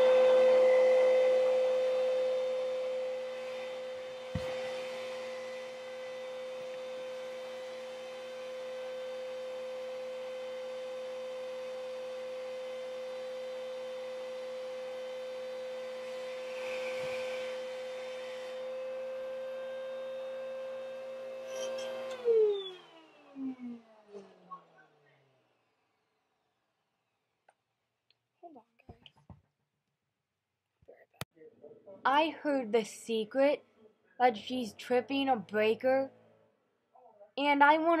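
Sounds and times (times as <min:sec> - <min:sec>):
vacuum cleaner whining: 0:00.0 - 0:26.5.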